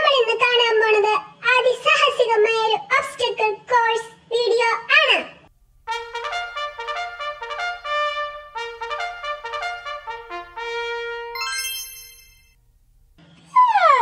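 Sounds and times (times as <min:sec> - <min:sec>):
brass fanfare: 0:05.9 - 0:12.2.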